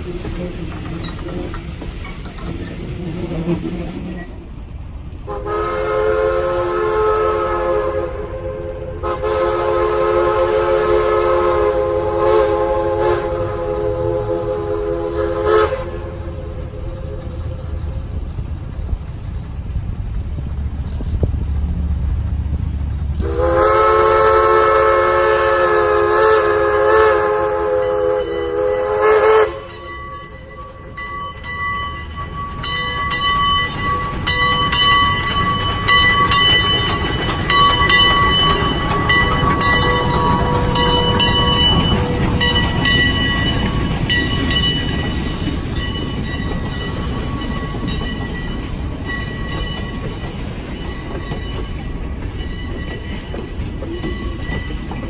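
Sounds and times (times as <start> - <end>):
rail clicks: 0.0 - 5.9, 6.6 - 55.0
train rolling rumble: 0.0 - 55.0
steam locomotive whistle: 5.2 - 17.2, 23.2 - 31.0, 37.5 - 43.6.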